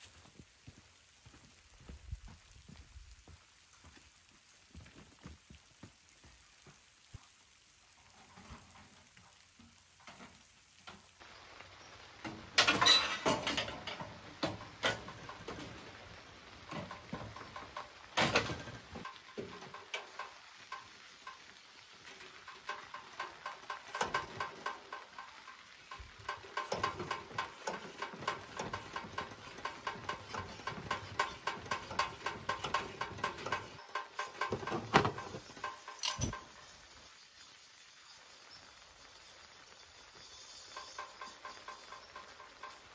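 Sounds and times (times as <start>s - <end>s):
hand pump clicks and squeaks: 22.1s - 36.8s, 40.2s - 42.9s.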